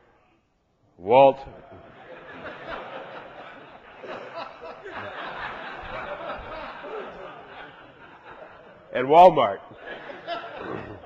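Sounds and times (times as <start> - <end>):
audience laughing: 1.6 - 8.9, 9.7 - 11.0.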